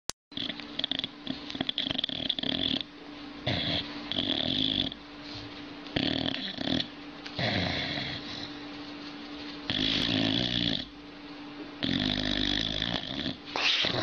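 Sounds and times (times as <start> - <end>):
dog snoring: 0.3 - 5.0, 5.9 - 8.6, 9.7 - 10.9, 11.8 - 14.0.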